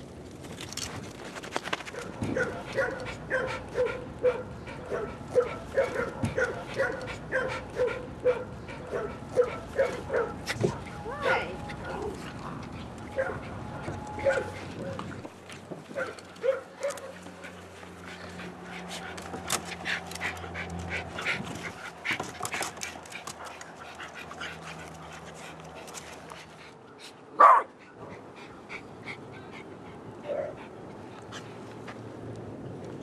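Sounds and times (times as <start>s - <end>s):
clicks and rustles: 0.0s - 3.2s, 13.8s - 26.7s
dog barking: 2.0s - 10.4s, 16.0s - 17.2s, 27.4s - 27.7s.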